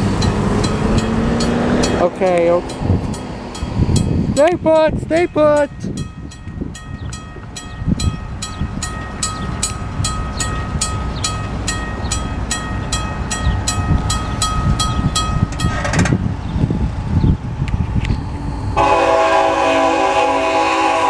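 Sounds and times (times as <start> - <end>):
crossing warning bell ringing: 0.0 - 15.9.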